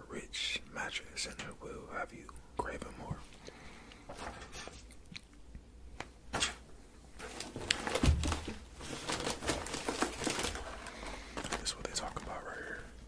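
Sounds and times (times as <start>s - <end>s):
candy wrapper crinkling: 7.4s - 12.8s.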